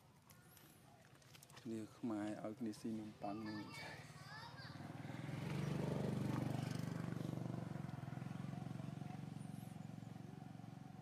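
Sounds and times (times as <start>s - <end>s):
passing vehicle engine drone: 4.8s - 11.0s.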